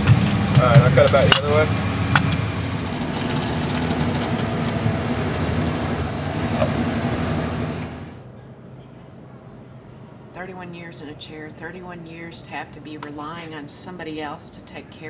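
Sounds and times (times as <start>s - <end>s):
wheelchair lift mechanical hum: 0.0s - 8.2s.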